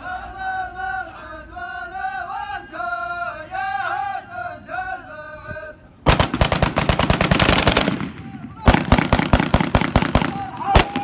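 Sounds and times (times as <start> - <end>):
men chanting in unison: 0.0 - 5.9
automatic gunfire: 6.1 - 11.0.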